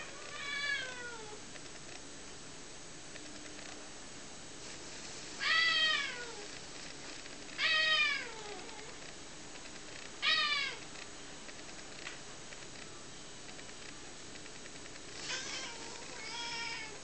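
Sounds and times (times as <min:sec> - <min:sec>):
cat meowing: 0:00.0 - 0:01.4, 0:05.4 - 0:06.4, 0:07.6 - 0:08.9, 0:10.2 - 0:10.8, 0:15.2 - 0:17.0.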